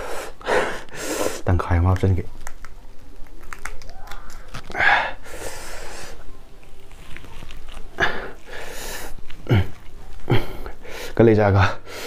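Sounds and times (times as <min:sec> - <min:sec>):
man chewing wetly: 0:01.9 - 0:11.2.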